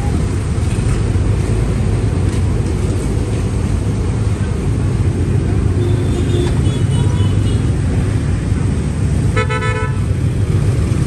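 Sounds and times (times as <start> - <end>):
street traffic rumble: 0.0 - 11.0
vehicle horn toot: 9.4 - 10.0.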